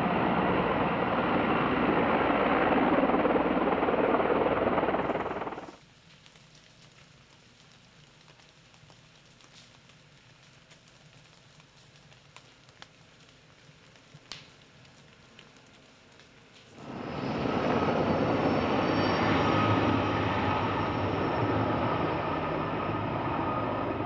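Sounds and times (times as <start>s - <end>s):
helicopter turbine and rotor: 0.0s - 5.8s, 16.8s - 24.0s
faint crackles: 4.8s - 17.4s.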